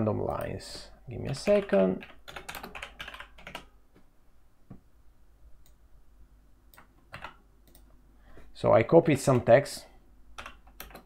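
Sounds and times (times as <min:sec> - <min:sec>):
keyboard keystrokes: 0:06.8 - 0:07.8, 0:10.4 - 0:11.0.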